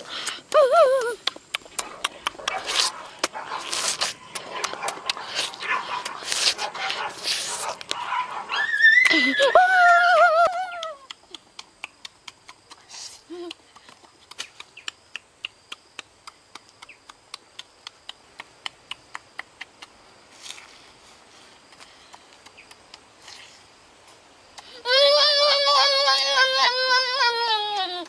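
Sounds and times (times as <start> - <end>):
person humming: 0.0 - 2.4, 9.0 - 11.4, 13.0 - 13.6, 24.6 - 28.0
wet lip-smacking chewing: 0.0 - 8.0, 10.8 - 20.0.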